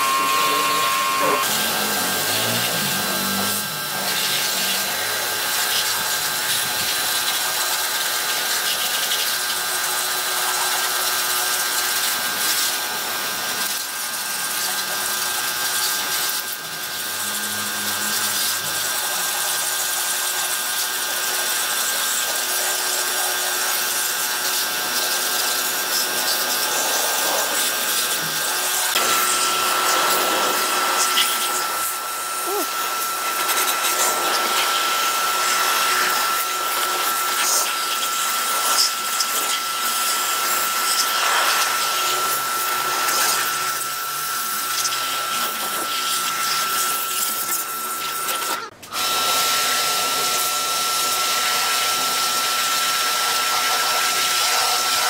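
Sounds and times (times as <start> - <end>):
power tool motor whine: 0.0 - 55.0.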